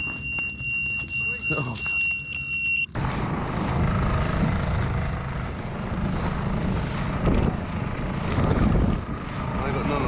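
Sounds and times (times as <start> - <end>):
dense low rumbling: 3.0 - 10.0.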